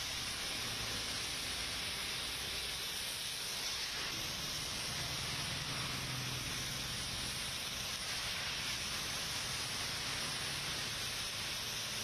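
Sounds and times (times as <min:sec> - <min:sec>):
heavy rain on a wet road: 0:04.2 - 0:12.0.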